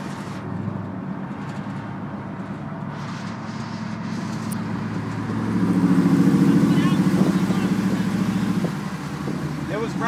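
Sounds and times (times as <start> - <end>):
road noise: 0.0 - 10.0
truck engine running steadily: 0.0 - 10.0.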